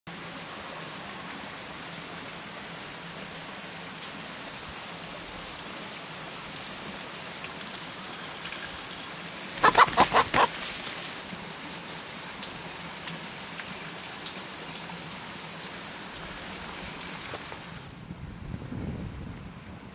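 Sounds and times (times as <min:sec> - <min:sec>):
steady outdoor hiss: 0:00.1 - 0:19.9
rooster squawking: 0:09.6 - 0:10.6
branches rustling: 0:09.6 - 0:11.2.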